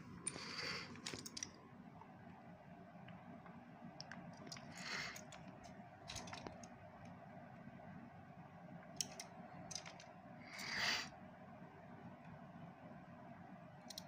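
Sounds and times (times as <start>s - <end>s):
toy trucks clicking and scraping: 0.2s - 1.5s, 9.0s - 11.1s.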